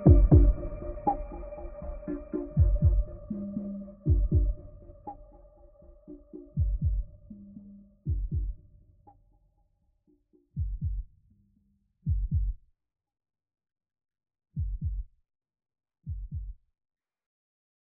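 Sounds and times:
heartbeat double thumps: 0.0 - 1.2, 2.2 - 3.4, 4.0 - 4.8, 6.5 - 7.3, 8.1 - 8.6, 10.6 - 11.1, 12.1 - 12.6, 14.6 - 15.1, 16.1 - 16.6.

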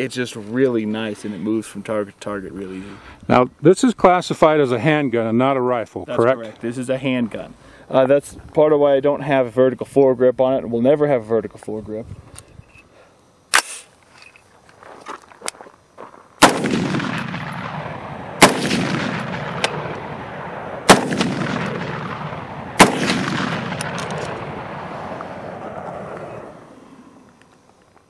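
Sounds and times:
sharp click: 13.5 - 14.4
gunshots with rolling echo: 16.4 - 26.6.

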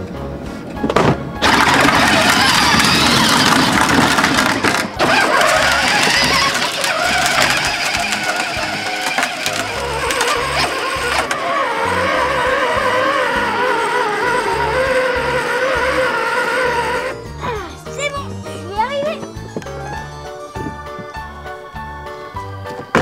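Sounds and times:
toy car electric motor whirring: 1.4 - 17.3
background music with steady beat: 11.9 - 23.0.

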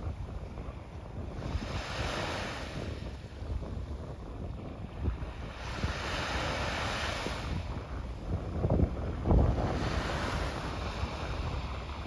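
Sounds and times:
small waves washing onto beach: 0.0 - 12.0
wind buffeting microphone: 0.0 - 12.0.

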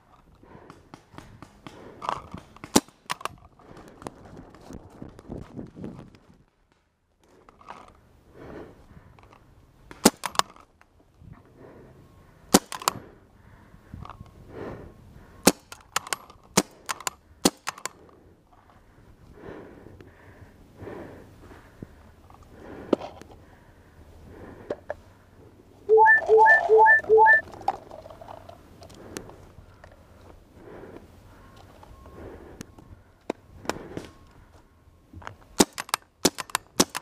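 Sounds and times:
paintball markers firing: 35.6 - 37.0.

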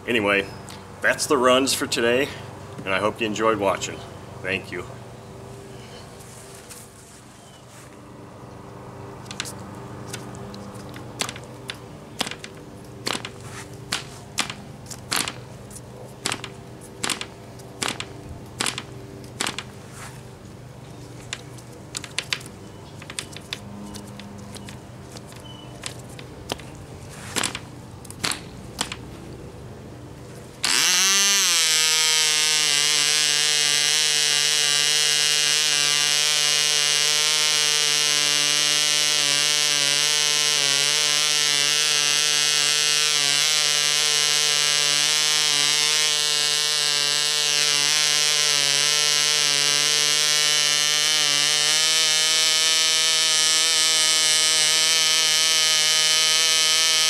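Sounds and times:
model engine high-pitched buzz: 30.5 - 57.0.

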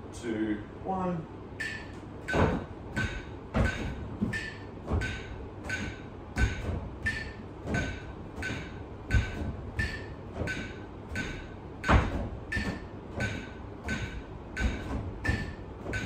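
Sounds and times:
metronome ticking: 1.6 - 16.0
feet stepping on a chair: 2.0 - 16.0.

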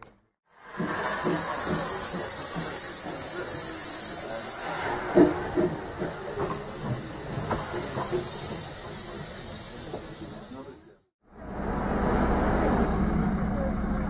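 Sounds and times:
steam hissing: 0.5 - 11.1
steam locomotive knocks and beats: 0.6 - 11.0.

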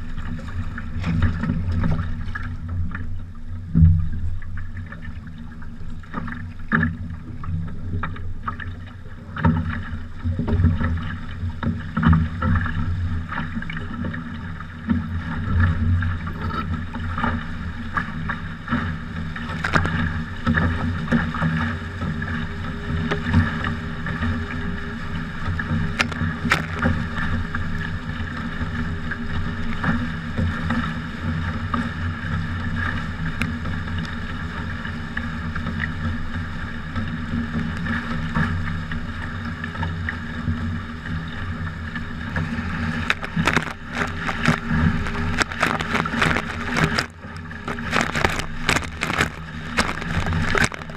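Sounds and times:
water rushing along boat hulls: 0.0 - 50.9
water slapping: 8.4 - 36.2, 37.0 - 50.9.

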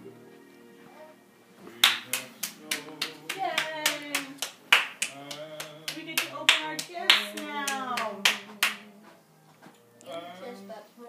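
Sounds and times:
hands clapping: 1.8 - 8.9.

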